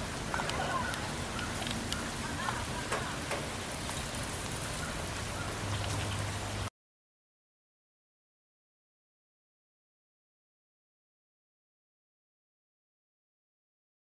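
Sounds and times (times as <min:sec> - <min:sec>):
steady rain falling: 0:00.0 - 0:06.7
drops ticking on surfaces: 0:02.9 - 0:04.0.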